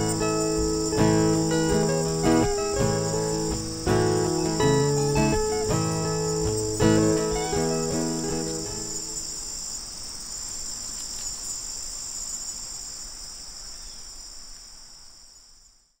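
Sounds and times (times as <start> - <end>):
plucked guitar notes: 0.0 - 9.2
chirring insects: 0.0 - 16.0.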